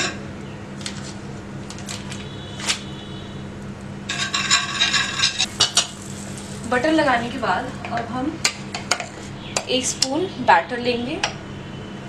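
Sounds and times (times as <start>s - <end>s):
metal spoon clinking on griddle: 4.1s - 6.0s.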